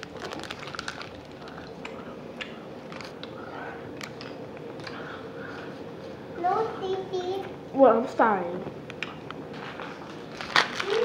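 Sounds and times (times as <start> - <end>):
snack being chewed: 0.0 - 5.7, 8.9 - 11.0.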